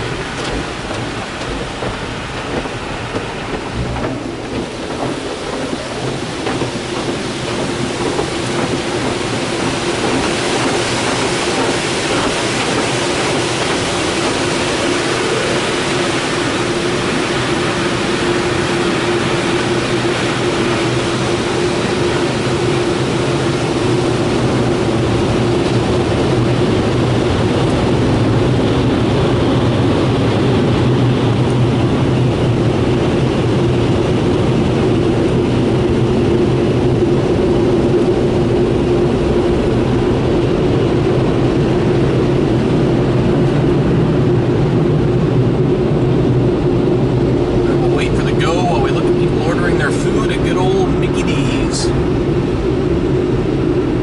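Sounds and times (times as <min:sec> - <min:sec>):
water spray on car: 0:00.0 - 0:27.6
dryer blowers rushing air: 0:00.0 - 0:54.0
fan hum: 0:00.0 - 0:54.0.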